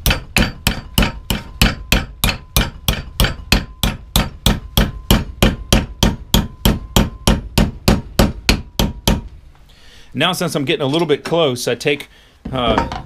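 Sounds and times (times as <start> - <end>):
hammer tapping metal: 0.0 - 9.4.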